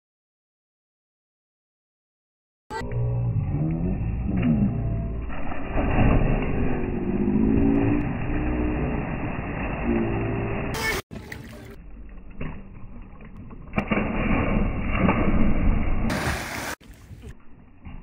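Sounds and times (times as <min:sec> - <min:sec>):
water splashing: 0:04.4 - 0:18.0.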